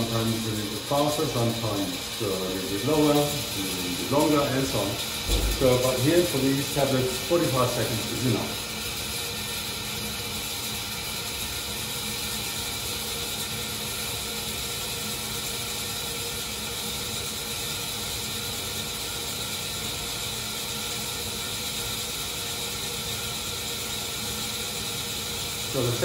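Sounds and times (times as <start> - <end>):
lab mixer running: 0.0 - 26.0.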